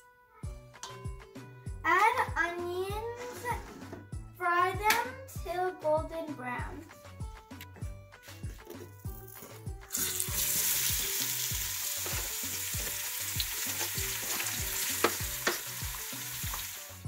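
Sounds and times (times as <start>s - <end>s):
onions sizzling in hot oil: 9.9s - 17.0s.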